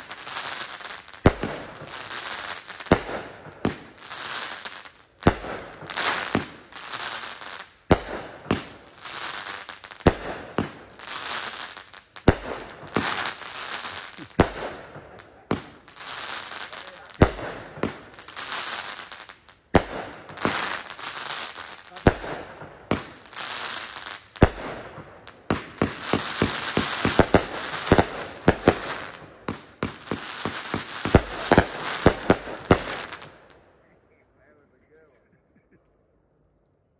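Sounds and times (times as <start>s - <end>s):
firework shots with crackling bursts: 0.0s - 35.7s.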